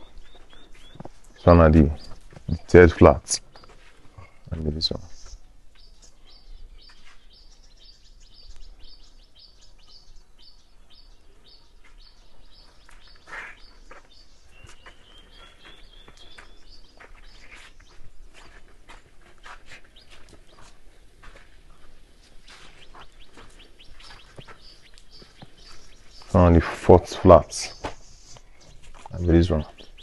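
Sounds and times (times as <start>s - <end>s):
faint outdoor background noise: 0.0s - 30.0s
small birds chirping: 0.0s - 30.0s.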